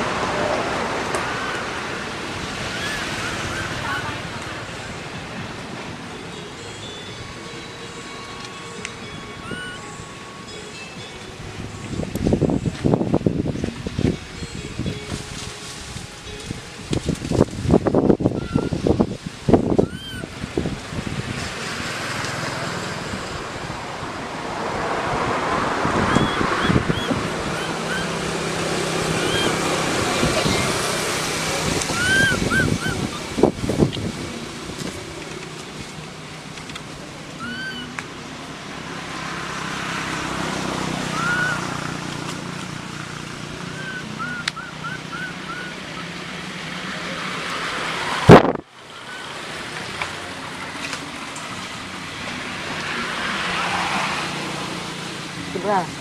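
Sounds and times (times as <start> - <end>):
wind on microphone: 11.5 - 21.9, 23.0 - 35.2, 47.9 - 48.7.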